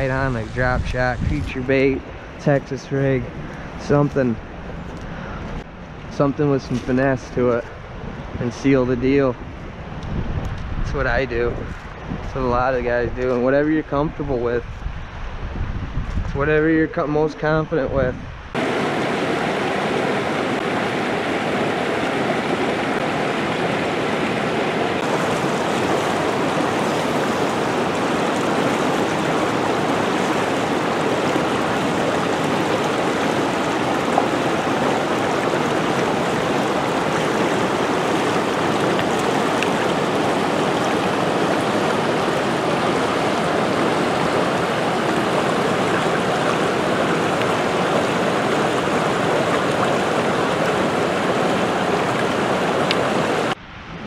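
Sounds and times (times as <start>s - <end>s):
river water rushing: 18.6s - 54.0s.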